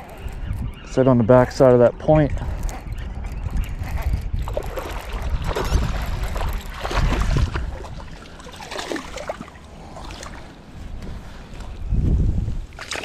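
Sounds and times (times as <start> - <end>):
wind rumbling on microphone: 0.0 - 13.0
fish splashing in water: 4.5 - 10.4.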